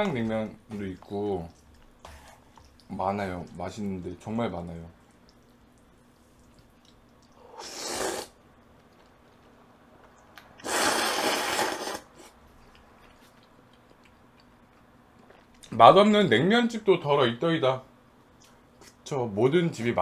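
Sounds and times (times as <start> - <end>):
person slurping noodles: 7.4 - 8.4, 10.6 - 12.4.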